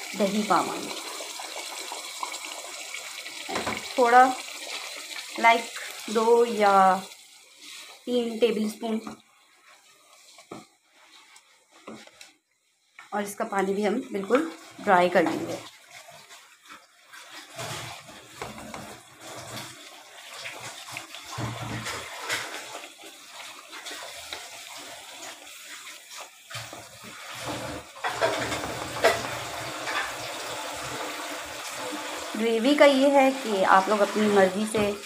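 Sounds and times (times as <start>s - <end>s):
gravy bubbling in a pot: 0.0s - 34.0s.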